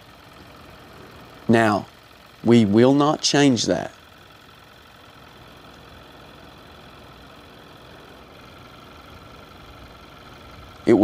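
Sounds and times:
faint car engine idling: 0.0s - 11.0s.

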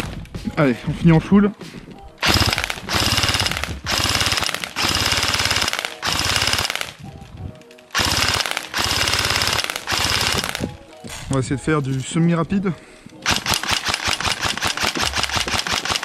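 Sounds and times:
airsoft gun full-auto bursts: 2.2s - 7.0s, 7.9s - 10.7s, 13.2s - 16.0s.

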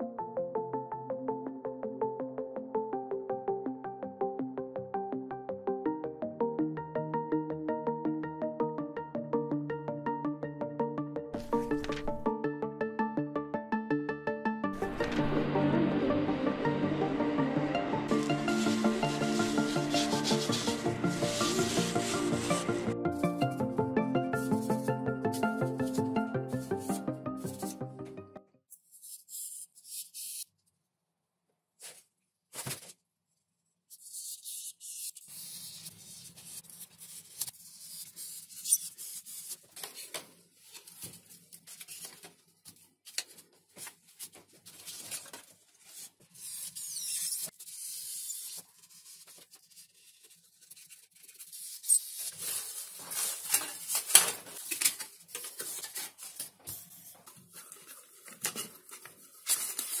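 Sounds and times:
paper scratching and rustling: 11.4s - 12.2s, 14.8s - 15.4s, 18.1s - 22.9s, 34.0s - 60.0s
foam rubbing and crackling: 18.1s - 22.9s
utility knife scoring foam: 18.1s - 22.9s, 46.0s - 52.5s.

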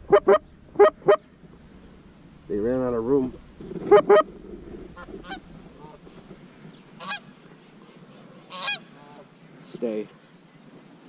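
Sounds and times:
geese honking: 0.0s - 1.3s, 3.6s - 7.5s, 8.3s - 9.3s.

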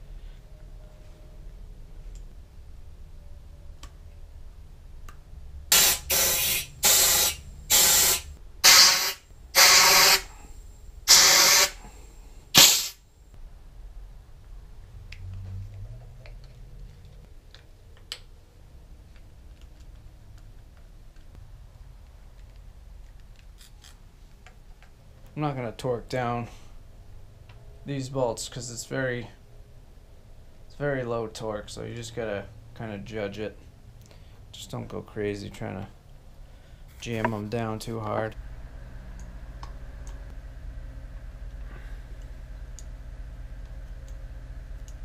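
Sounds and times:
air blow gun hissing blasts: 5.7s - 10.5s, 11.1s - 13.1s.

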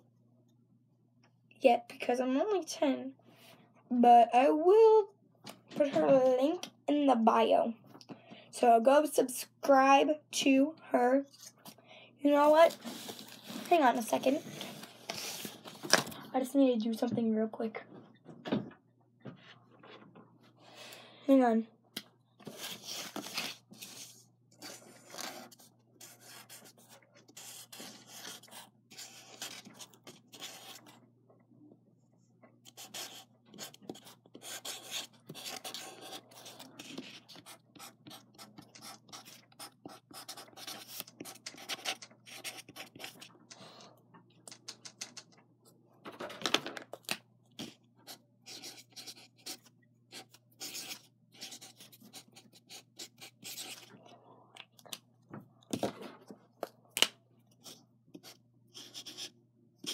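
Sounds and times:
marker pen scratching: 22.5s - 31.0s, 32.7s - 43.3s, 47.6s - 53.9s, 57.6s - 59.9s.

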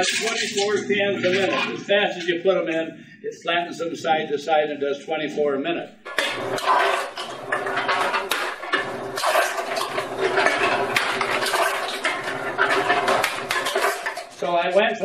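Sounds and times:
cans clattering and crunching: 0.0s - 1.9s, 6.1s - 14.9s
motor hum: 6.1s - 14.4s.

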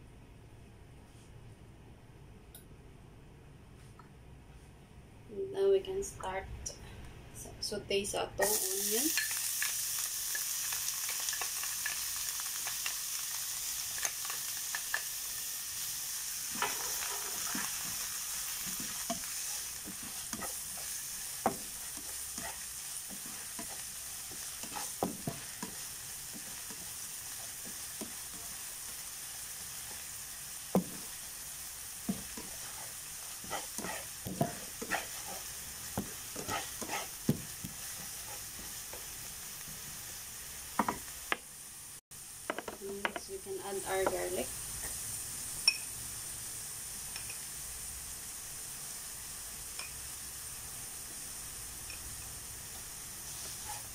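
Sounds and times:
onion sizzling in hot oil: 8.0s - 53.9s
spatula scraping and tapping pan: 16.5s - 18.0s, 18.6s - 28.6s, 32.0s - 39.1s.

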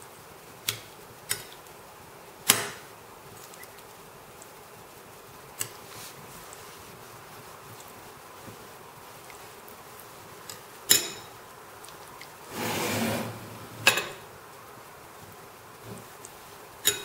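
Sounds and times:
faint background hiss: 0.0s - 17.0s
spoon scraping bowl: 12.5s - 14.2s.

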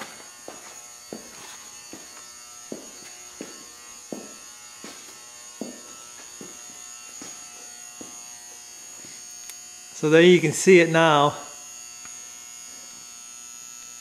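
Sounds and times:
footsteps on concrete: 0.0s - 9.3s
high-pitched electrical whine: 0.0s - 14.0s.

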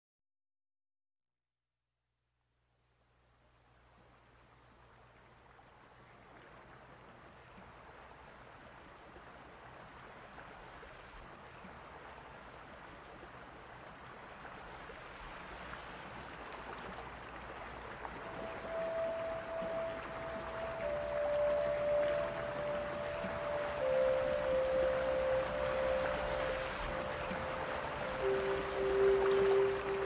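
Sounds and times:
running water: 4.0s - 30.0s
held musical tone: 18.1s - 30.0s.

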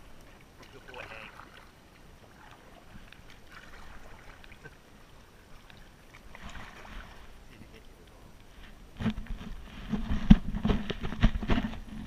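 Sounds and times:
water lapping around kayak: 0.0s - 12.0s.

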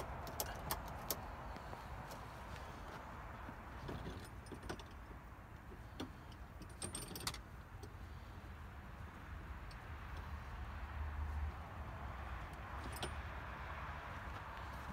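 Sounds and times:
metal strap hardware clinking: 6.0s - 7.9s.

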